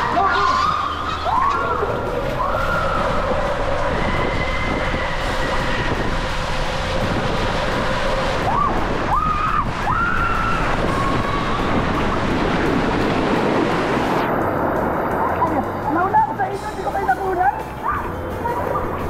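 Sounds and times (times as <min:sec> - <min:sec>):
rushing water: 0:00.0 - 0:19.0
wind noise: 0:00.0 - 0:19.0
riders screaming: 0:08.4 - 0:12.1.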